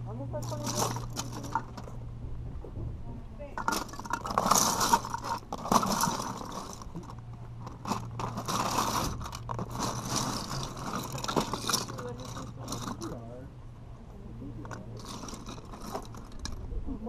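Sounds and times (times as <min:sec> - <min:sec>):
plastic bricks clattering: 0:00.4 - 0:02.0, 0:03.6 - 0:13.2, 0:14.6 - 0:16.6.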